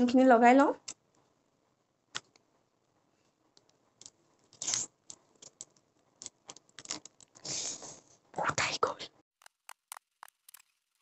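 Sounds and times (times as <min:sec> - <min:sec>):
packaging crinkling: 0:04.0 - 0:07.4
small clicks and ticks: 0:09.4 - 0:11.0.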